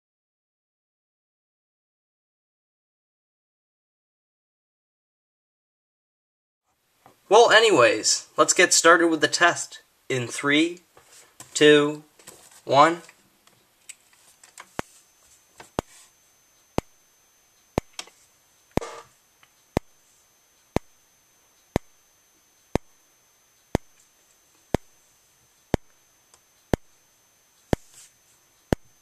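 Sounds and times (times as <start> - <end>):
faint high-pitched whine: 6.7 - 29.0
fire alarm strobe clicking: 15.7 - 28.0.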